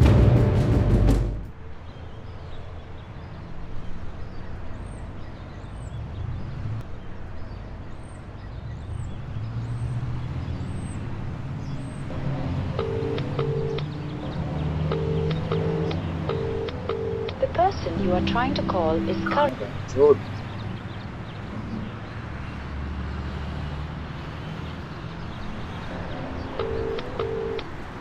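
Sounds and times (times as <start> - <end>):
loud music hit: 0.0 - 1.5
low traffic rumble: 0.0 - 28.0.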